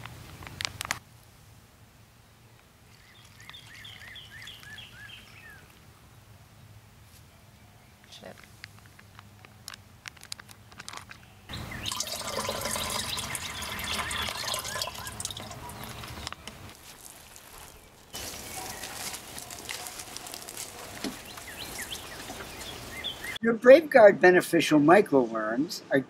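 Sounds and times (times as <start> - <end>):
water pouring into watering can: 2.9 - 3.9, 11.6 - 16.3, 18.2 - 20.6
plastic pouch crinkling: 8.8 - 11.2, 15.8 - 23.0
water streaming onto plants: 11.8 - 22.8.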